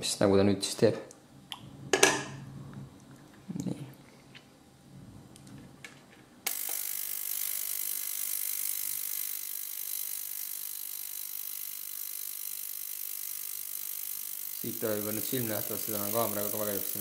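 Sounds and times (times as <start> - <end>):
ultrasonic cleaner buzzing hiss: 6.5 - 17.0.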